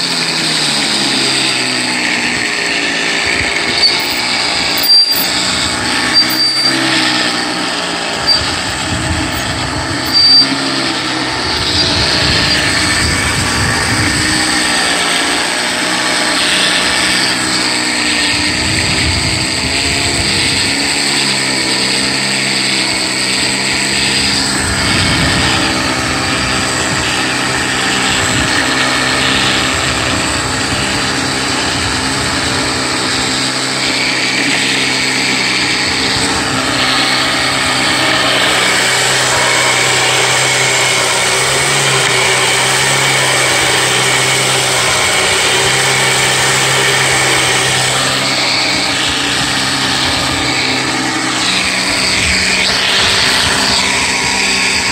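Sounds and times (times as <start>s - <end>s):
electric winch motor: 0.0s - 54.9s
lawn tractor engine: 0.0s - 54.9s.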